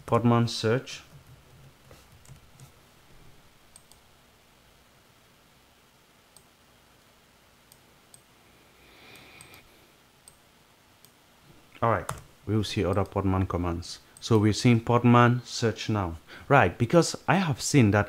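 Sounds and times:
soft hiss: 0.0 - 18.0
computer mouse and keyboard clicks: 1.1 - 2.7.

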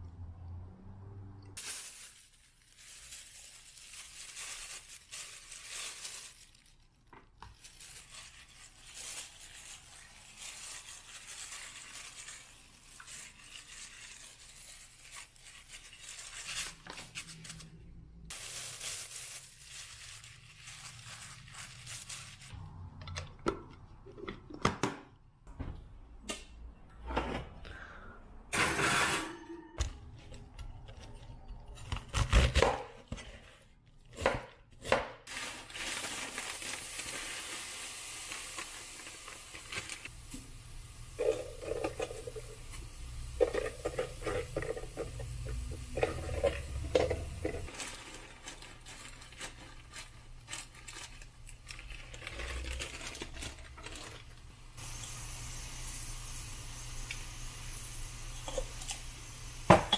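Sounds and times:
frying pan hissing: 54.7 - 59.9.

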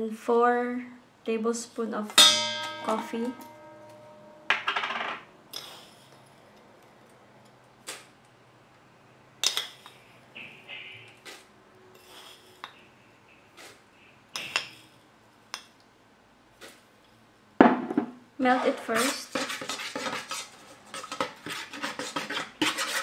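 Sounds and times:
spoon clinking on a metal bowl: 2.2 - 5.0.

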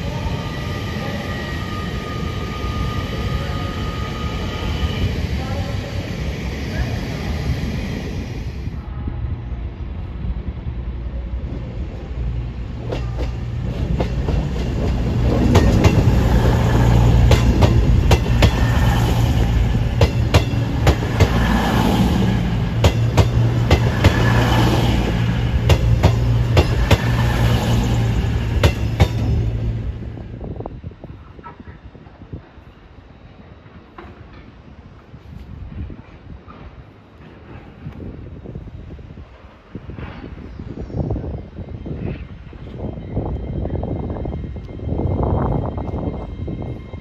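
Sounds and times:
train diesel engines droning: 0.0 - 47.0
train wheels clicking over rail joints: 12.8 - 21.6, 22.6 - 27.6.

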